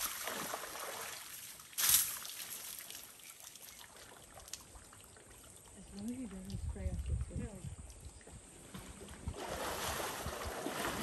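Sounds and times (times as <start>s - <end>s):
water splashing and trickling: 0.0s - 11.0s.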